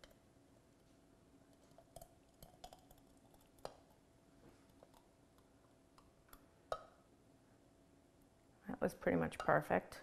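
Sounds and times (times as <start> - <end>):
hot jam pouring into glass jar: 1.5 - 4.0.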